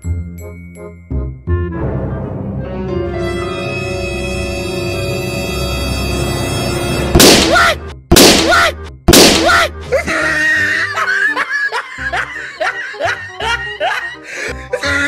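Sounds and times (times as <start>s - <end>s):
music: 0.0s - 15.0s
balloon bursting with a bang: 7.1s - 9.6s
laughter: 9.9s - 15.0s.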